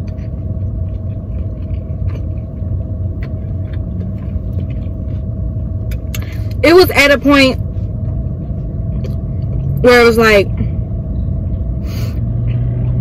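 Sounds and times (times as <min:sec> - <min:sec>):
faint chewing clicks: 0:00.0 - 0:06.3
car engine idling: 0:00.0 - 0:13.0.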